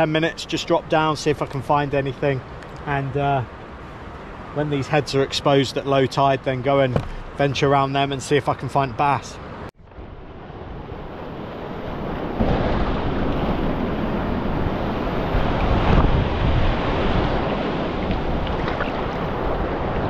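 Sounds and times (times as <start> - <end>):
sea swell breaking over rocks: 9.9 - 20.0
wind on microphone: 9.9 - 20.0.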